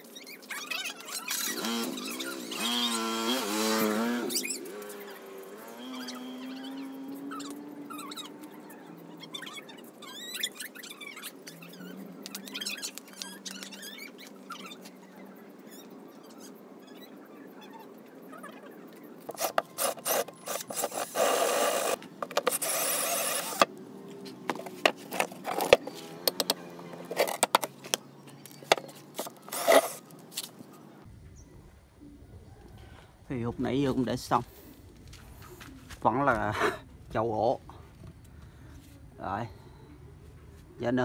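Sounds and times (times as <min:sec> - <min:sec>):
birds chirping: 0:00.0 - 0:41.0
cordless drill driving screws: 0:19.3 - 0:23.7, 0:29.2 - 0:30.0.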